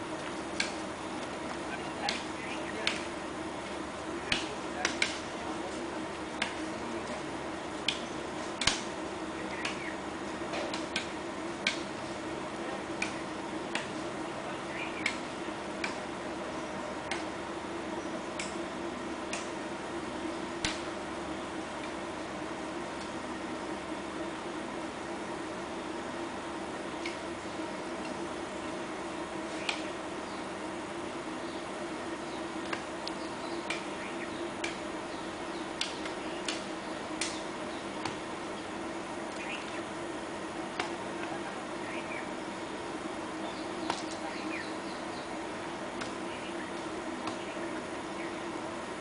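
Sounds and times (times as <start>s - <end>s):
steady low hum: 0.0s - 49.0s
hoes chopping into dry soil: 0.1s - 5.4s, 6.3s - 7.2s, 7.8s - 9.9s, 10.5s - 12.0s, 12.9s - 14.0s, 15.0s - 16.1s, 17.0s - 17.3s, 19.3s - 19.6s, 20.6s - 20.9s, 29.5s - 29.9s, 32.6s - 34.0s, 34.6s - 34.9s, 35.8s - 38.7s, 40.7s - 41.4s, 43.8s - 44.4s, 46.0s - 47.6s
hoes striking hard soil: 4.2s - 5.3s, 20.6s - 20.9s.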